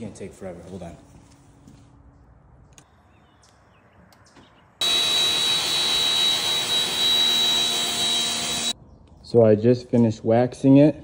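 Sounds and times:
pressure washer spraying: 0:04.8 - 0:08.8.

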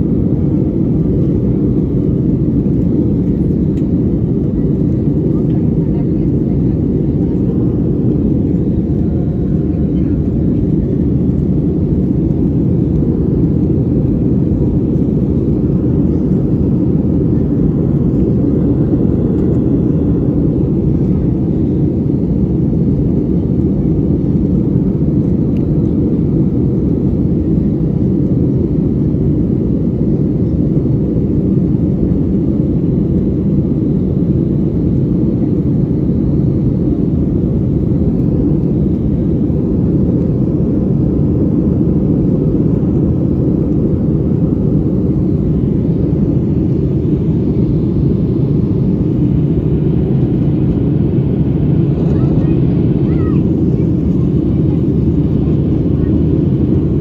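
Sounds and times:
airplane cabin drone: 0:00.0 - 0:57.0.

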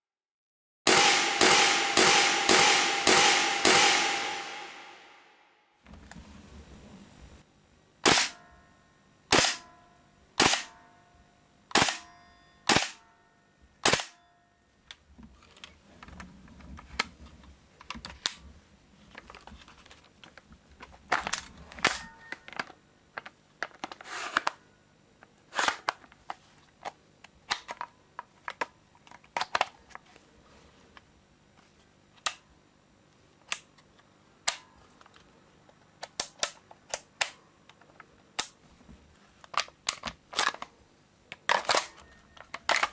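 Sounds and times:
airsoft rifle shots: 0:00.9 - 0:05.3, 0:08.0 - 0:08.4, 0:09.3 - 0:09.7, 0:10.4 - 0:10.8, 0:11.7 - 0:12.1, 0:12.7 - 0:13.0, 0:13.8 - 0:14.2.

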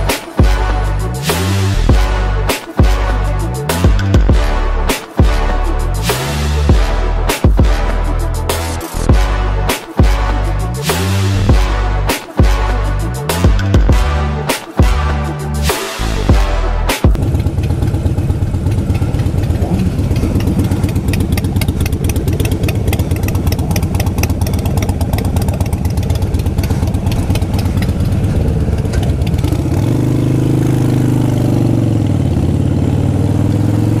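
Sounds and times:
motorcycle engine idling: 0:17.1 - 0:33.9.

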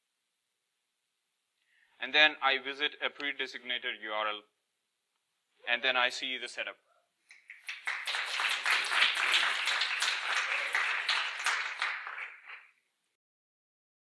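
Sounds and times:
audience applauding: 0:07.3 - 0:12.8.

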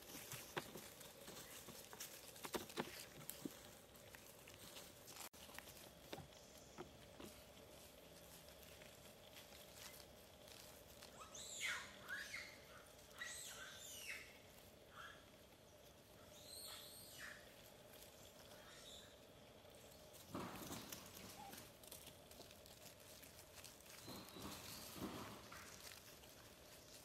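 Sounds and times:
faint outdoor background: 0:00.0 - 0:27.0
squeaky animal chirping: 0:11.2 - 0:14.4.

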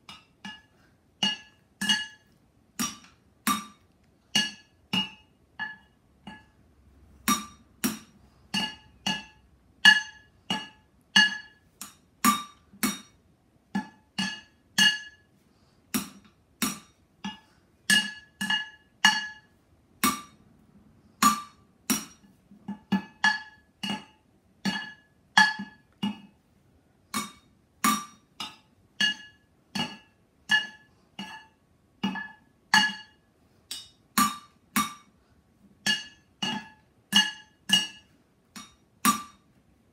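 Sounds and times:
drumsticks clanging on pots: 0:00.0 - 0:06.6, 0:07.2 - 0:13.2, 0:15.9 - 0:20.4, 0:21.2 - 0:26.3, 0:27.1 - 0:35.2, 0:35.8 - 0:39.5.

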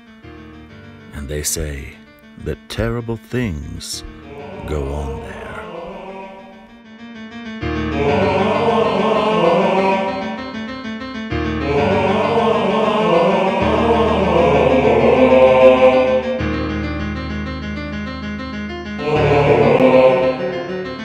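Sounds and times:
choir singing sustained chords: 0:04.1 - 0:07.0, 0:07.7 - 0:17.2, 0:18.9 - 0:21.0.

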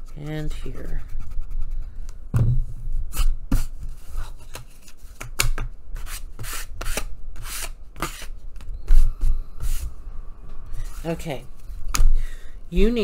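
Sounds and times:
heavy thump: 0:02.3 - 0:02.8.

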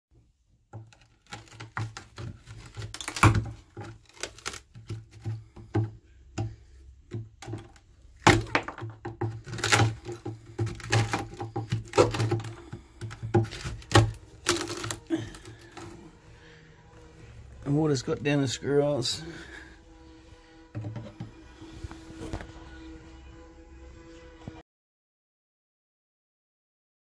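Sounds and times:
metal tool prying rotten wood: 0:00.8 - 0:16.1.

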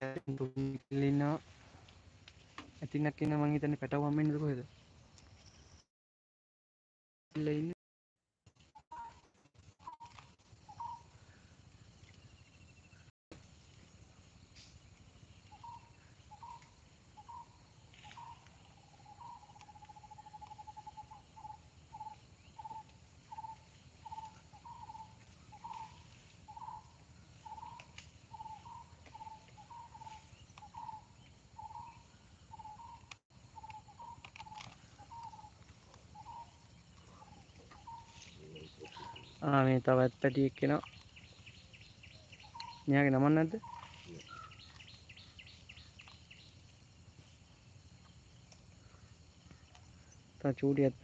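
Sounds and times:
rapid animal trill: 0:15.3 - 0:51.0.

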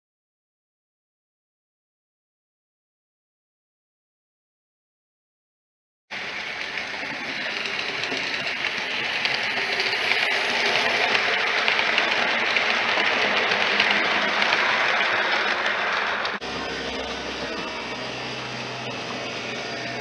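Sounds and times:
model train whirring on rails: 0:06.1 - 0:20.0.

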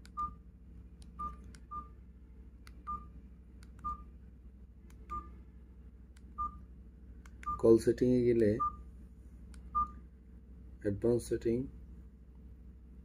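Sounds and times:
phone keypad beeps: 0:00.1 - 0:00.4, 0:01.2 - 0:01.9, 0:02.8 - 0:03.1, 0:05.1 - 0:05.3, 0:06.4 - 0:06.6, 0:07.4 - 0:07.6, 0:09.7 - 0:10.0.

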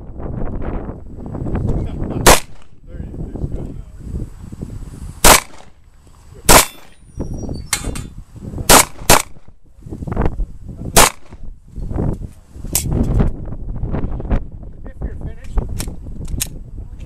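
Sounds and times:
handgun shots: 0:02.2 - 0:02.7, 0:05.2 - 0:05.7, 0:06.5 - 0:07.0, 0:08.7 - 0:09.5, 0:11.0 - 0:11.4.

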